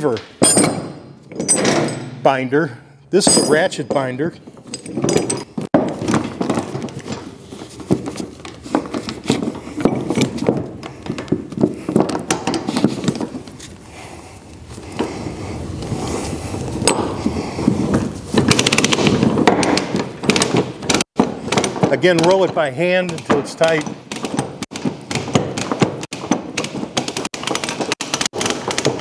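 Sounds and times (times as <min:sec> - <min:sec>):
chain links clanking: 0:00.4 - 0:07.8.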